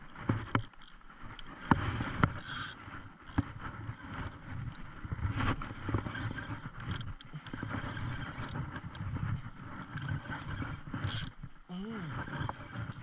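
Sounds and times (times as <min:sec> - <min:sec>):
small boat engine rumble: 0:00.0 - 0:13.0
fishing reel clicking: 0:10.0 - 0:11.4.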